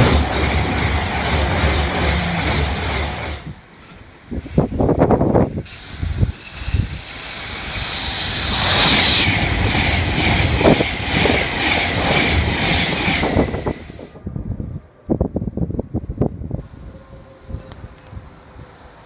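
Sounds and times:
train wheel beats: 0.0s - 3.5s
electric train passing at speed: 0.0s - 19.0s
steady train whine: 0.0s - 19.0s.

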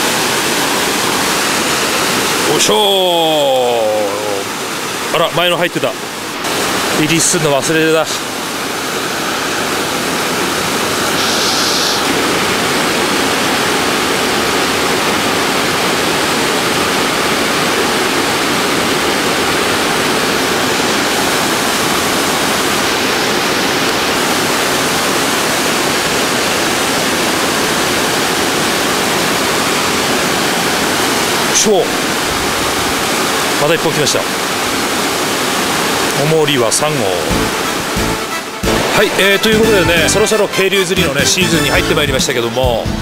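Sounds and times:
stream rushing over rocks: 0.0s - 41.4s.

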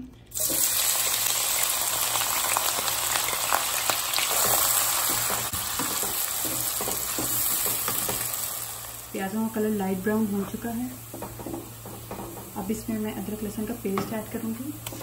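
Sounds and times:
onions sizzling in hot oil: 0.3s - 15.0s.

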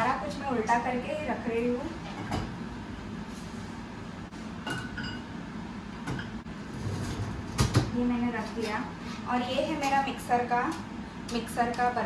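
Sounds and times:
dishes clinking: 4.6s - 5.3s, 6.0s - 6.4s
dishwasher rack rolling: 6.7s - 7.9s.

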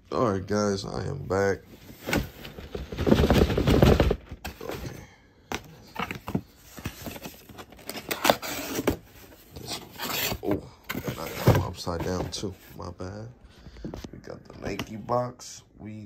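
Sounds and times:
cardboard box rustling: 1.8s - 4.9s, 6.0s - 12.8s.

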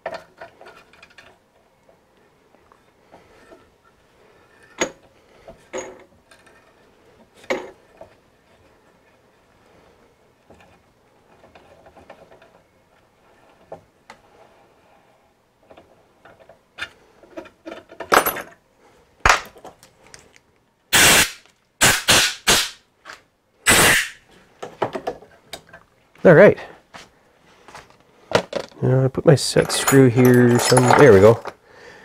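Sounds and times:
aerosol spray can blasts: 23.7s - 24.2s
metal parts clicking and knocking: 28.3s - 28.8s, 29.4s - 31.6s.

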